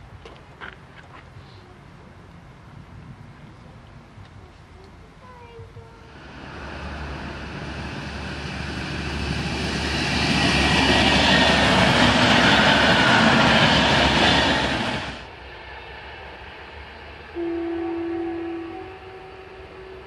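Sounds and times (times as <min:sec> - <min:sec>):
train passing: 0:05.3 - 0:20.0.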